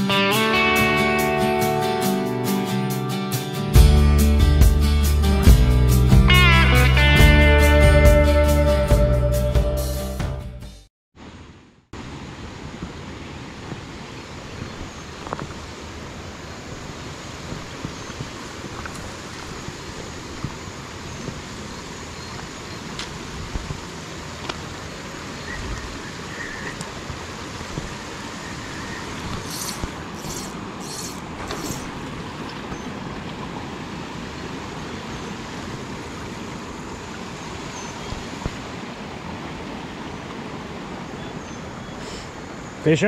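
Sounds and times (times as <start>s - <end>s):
creek running over rocks: 11.3s - 43.0s
short hissing strokes: 29.4s - 32.0s, 42.0s - 42.4s.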